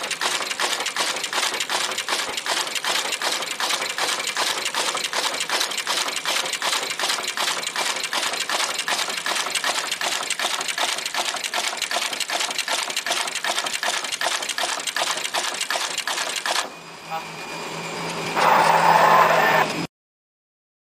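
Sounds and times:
rapid mechanical clicks: 0.0s - 16.7s.

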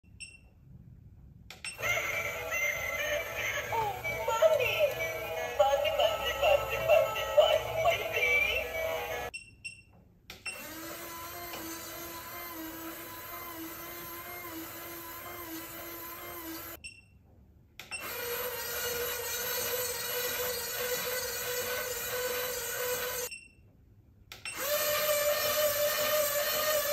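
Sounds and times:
toy motor droning tone: 1.7s - 9.3s, 10.5s - 16.8s, 18.0s - 23.3s, 24.5s - 26.9s
electronic toy song: 1.8s - 9.3s.

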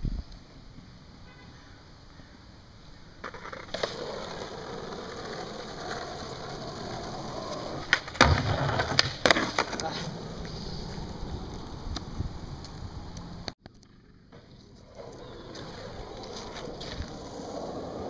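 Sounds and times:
skateboard wheels rolling on asphalt: 0.3s - 18.0s
skateboard clacking on ground: 3.2s - 13.3s, 14.3s - 18.0s.

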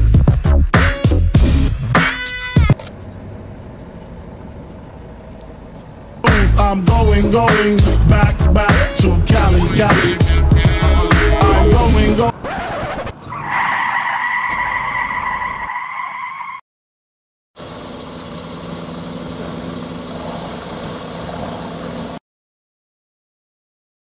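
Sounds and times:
car engine idling: 1.4s - 13.1s, 17.6s - 22.2s
car tyres squealing: 1.9s - 16.6s.

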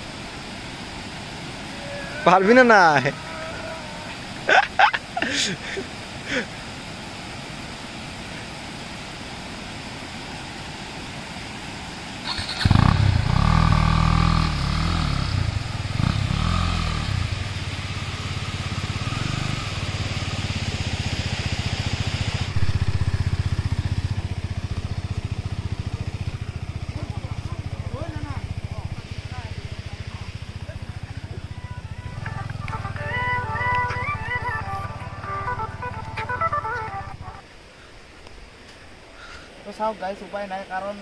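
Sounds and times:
motorcycle engine revving: 12.2s - 20.7s, 22.4s - 37.4s.

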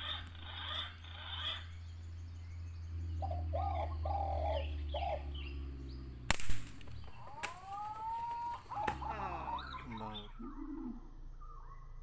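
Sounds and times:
bird calling harshly: 0.0s - 1.8s, 6.9s - 10.6s
air rifle shot: 6.3s - 6.9s
faint crack: 6.3s - 9.2s
rising whistled bird note: 9.6s - 12.0s.

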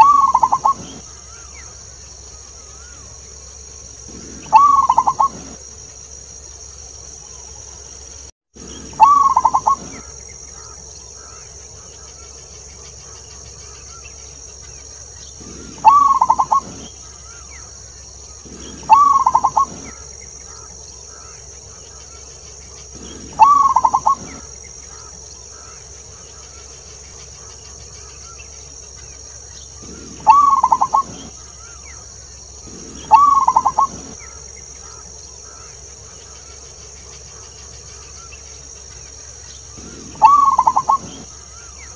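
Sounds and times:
dove cooing: 0.0s - 1.7s, 4.0s - 5.6s, 8.6s - 11.4s, 15.4s - 17.6s, 18.3s - 21.4s, 22.2s - 25.8s, 29.8s - 35.7s, 39.7s - 41.9s
steady high background hiss: 0.0s - 41.9s.

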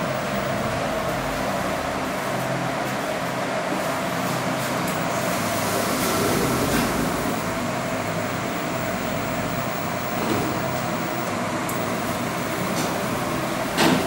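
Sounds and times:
mechanical hum: 0.0s - 14.0s
lift doors sliding open: 4.6s - 14.0s.

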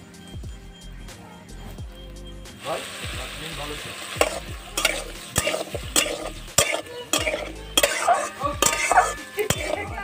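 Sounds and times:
frying sizzle: 2.5s - 10.0s
metal spatula scraping a pan: 4.2s - 10.0s.

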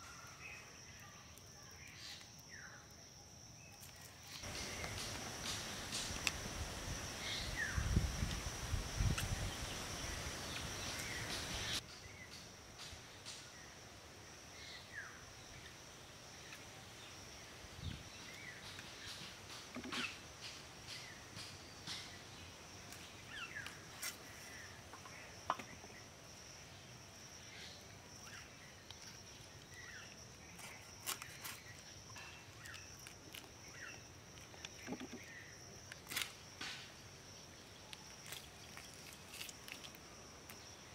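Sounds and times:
high insect drone: 0.0s - 40.9s
rustling: 38.1s - 40.6s.

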